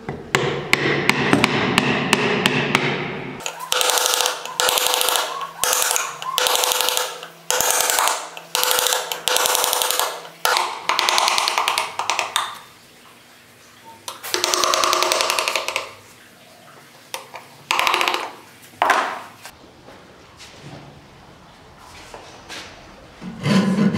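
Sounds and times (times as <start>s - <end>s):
hammer striking gouge: 0.3s - 12.4s.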